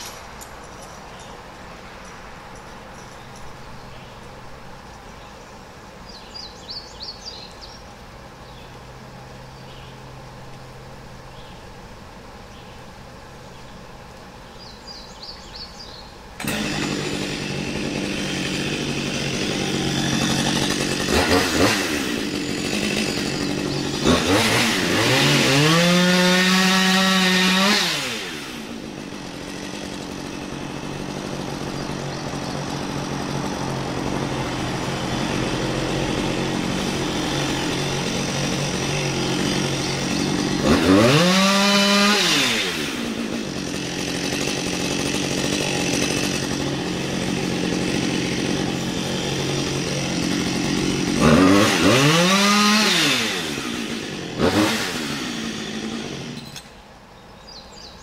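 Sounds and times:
chainsaw cutting wood: 0:00.0 - 0:01.3, 0:16.4 - 0:56.9
chainsaw revving: 0:16.4 - 0:56.8.

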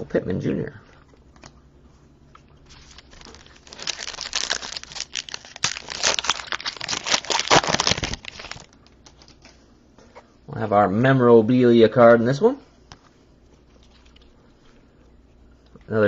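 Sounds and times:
wrapper crinkling and tearing: 0:02.7 - 0:09.5.

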